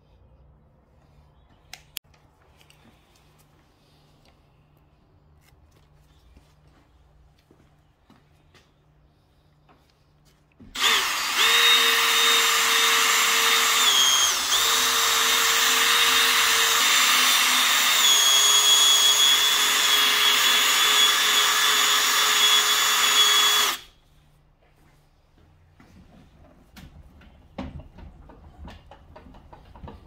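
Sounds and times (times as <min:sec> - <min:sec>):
drill motor whining: 0:10.7 - 0:24.0.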